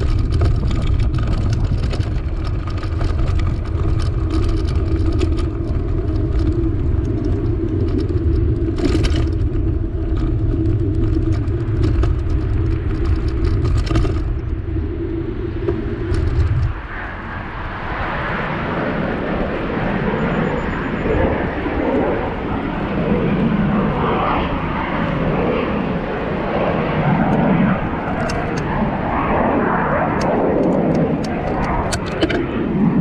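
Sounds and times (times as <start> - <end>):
rattles and knocks from road: 0.0 - 14.7, 15.6 - 16.9, 27.3 - 28.8, 30.1 - 32.6
wind rushing over microphone: 0.0 - 33.0.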